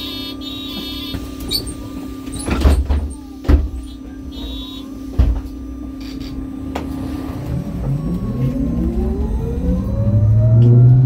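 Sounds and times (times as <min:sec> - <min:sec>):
bus engine humming: 0:06.4 - 0:11.0.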